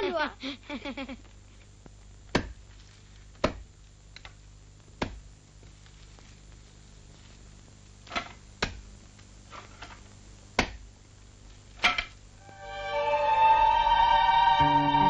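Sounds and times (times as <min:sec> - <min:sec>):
faint steady hum: 0:00.0 - 0:15.0
axe chopping branches: 0:02.3 - 0:02.6, 0:03.4 - 0:03.6, 0:05.0 - 0:05.2.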